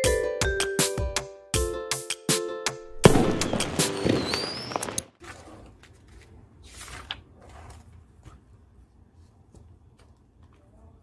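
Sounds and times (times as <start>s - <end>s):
crackling with rising whistle: 3.1s - 5.1s
paper rustling: 4.9s - 8.0s.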